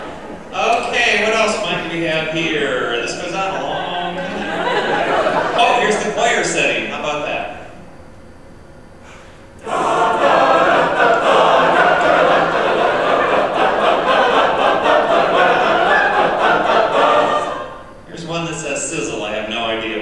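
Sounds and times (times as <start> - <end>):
wind band playing chords: 9.6 - 18.8.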